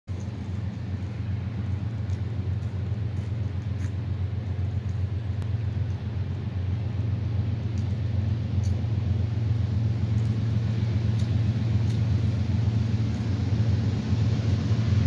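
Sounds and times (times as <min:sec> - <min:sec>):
distant diesel locomotives rumbling: 0:00.1 - 0:15.0.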